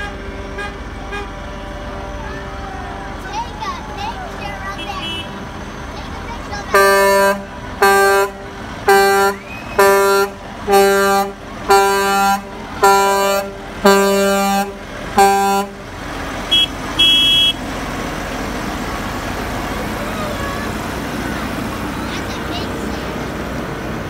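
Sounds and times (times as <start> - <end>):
truck air horn blasts: 0.0 - 1.4, 4.7 - 5.4, 6.7 - 15.8, 16.5 - 17.6.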